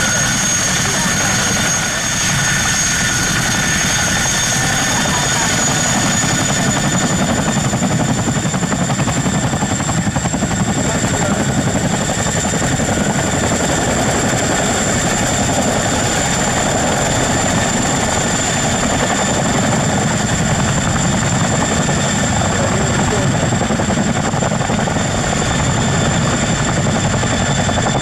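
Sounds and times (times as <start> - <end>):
helicopter rotor noise: 0.0 - 28.0
high turbine whine: 0.0 - 28.0.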